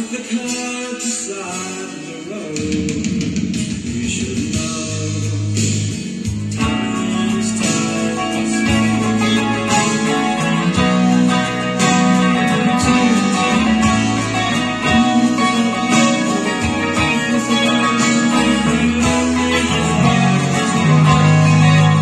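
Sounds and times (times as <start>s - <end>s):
electric guitar strumming: 5.3s - 22.0s.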